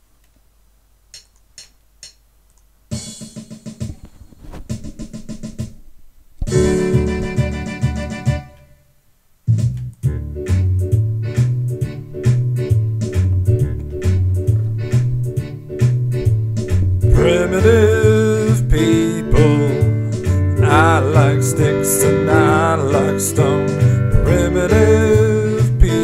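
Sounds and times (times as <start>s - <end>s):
keyboard and drums music: 1.1s - 2.3s, 2.9s - 8.8s, 9.5s - 26.0s
faint clicks: 1.1s - 2.7s
bouncing bass pattern: 4.7s - 8.6s, 9.5s - 26.0s.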